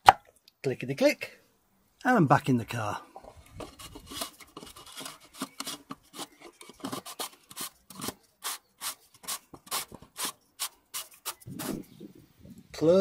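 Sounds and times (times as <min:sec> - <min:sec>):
plastic cap threads rasping: 0:03.4 - 0:10.1.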